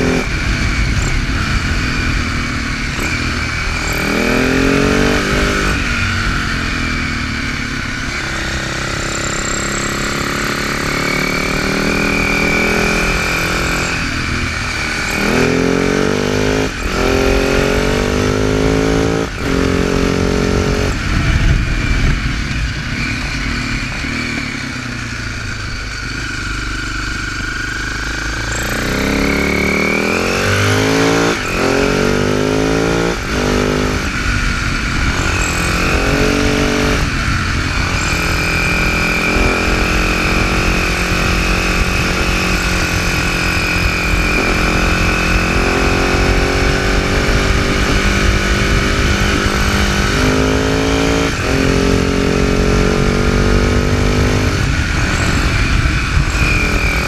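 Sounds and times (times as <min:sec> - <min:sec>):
motorcycle engine accelerating: 0:00.0 - 0:57.0.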